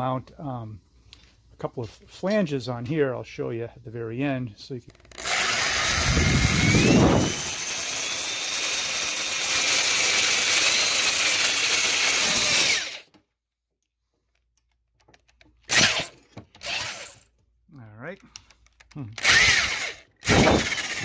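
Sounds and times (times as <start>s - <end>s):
electric drill boring through metal: 5.0s - 13.1s, 15.7s - 17.2s, 19.2s - 21.0s.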